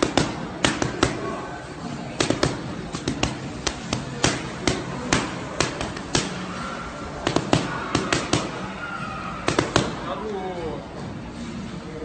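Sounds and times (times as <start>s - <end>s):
boxing gloves smacking focus mitts: 0.0s - 1.4s, 2.1s - 6.4s, 7.2s - 8.6s, 9.5s - 10.0s.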